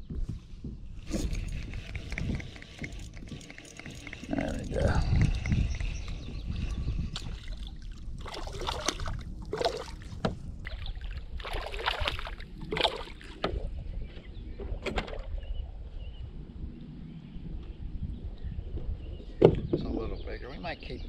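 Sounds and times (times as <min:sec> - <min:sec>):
paddle strokes splashing water: 0:07.4 - 0:13.4.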